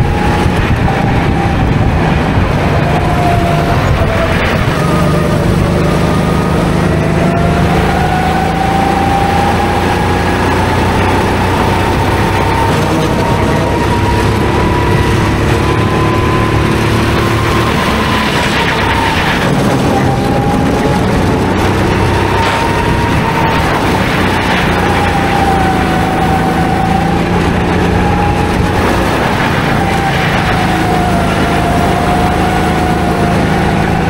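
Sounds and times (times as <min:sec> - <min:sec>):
go-kart engines running: 0:00.0 - 0:34.0
steady rushing noise: 0:00.0 - 0:34.0.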